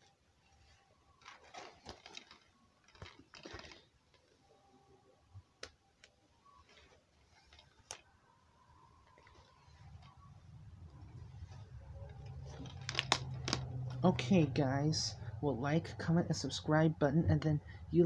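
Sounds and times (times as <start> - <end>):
plastic case clicking and rattling: 12.6 - 13.7.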